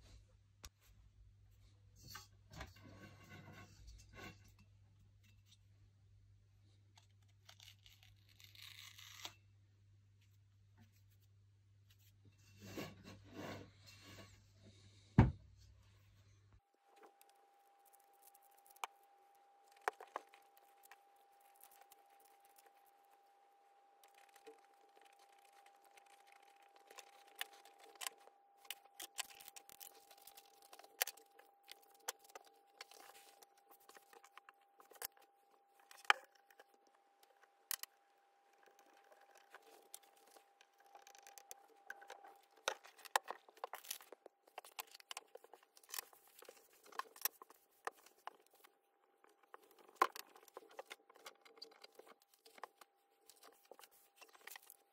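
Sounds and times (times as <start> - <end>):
fruit peel tearing: 7.2 - 9.3
faint steady tone: 9.3 - 54.9.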